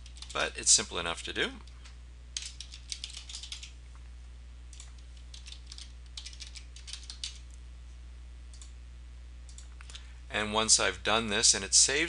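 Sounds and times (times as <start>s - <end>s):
keyboard typing: 0.0s - 0.4s, 2.4s - 3.7s, 4.7s - 7.4s
steady low hum: 0.0s - 12.0s.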